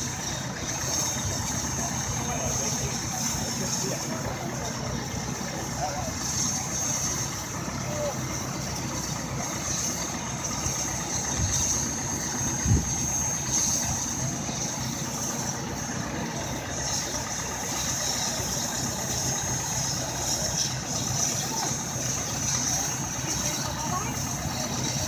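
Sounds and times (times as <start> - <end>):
steam hissing: 0.0 - 25.0
steam locomotive rumble: 0.0 - 25.0.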